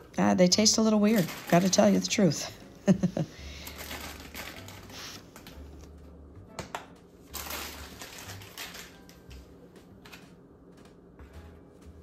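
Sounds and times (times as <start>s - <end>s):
crinkly rustle: 1.0s - 2.5s, 3.5s - 5.6s, 7.3s - 9.2s.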